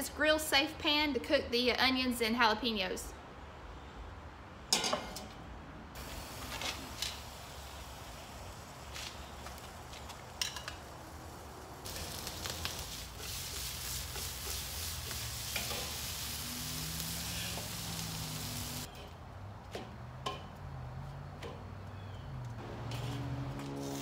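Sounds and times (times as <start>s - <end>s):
onions sizzling in a skillet: 6.0s - 19.0s.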